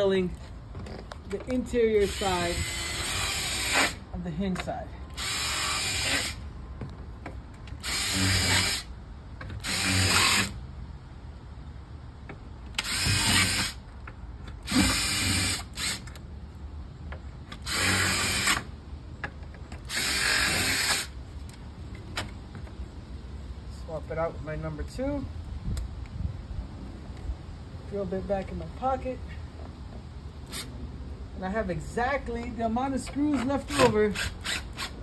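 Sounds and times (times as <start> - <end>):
cordless drill drilling: 2.0 - 4.0, 5.2 - 6.4, 7.8 - 8.9, 9.6 - 10.6, 12.8 - 13.8, 14.6 - 16.1, 17.6 - 18.7, 19.9 - 21.2, 33.7 - 35.0.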